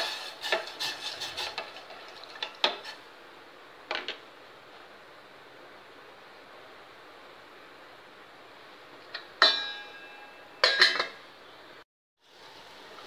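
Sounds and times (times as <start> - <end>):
metal spoon stirring in pot: 0.0 - 3.0.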